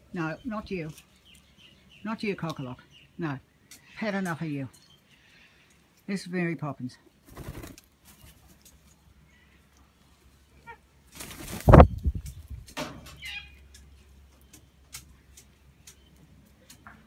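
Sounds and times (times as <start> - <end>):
bird wings flapping: 7.2 - 8.6, 11.1 - 12.4.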